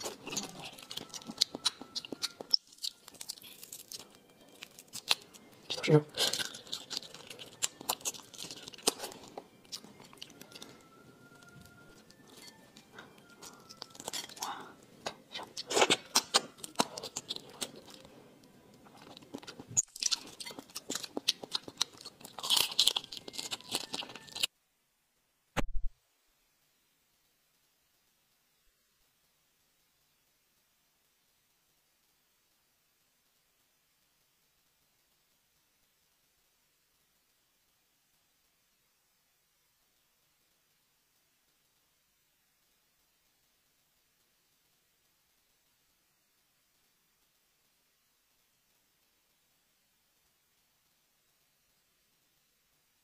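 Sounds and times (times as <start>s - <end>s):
shrimp shell cracking wetly: 0.0s - 10.6s, 15.0s - 18.1s, 18.9s - 24.5s.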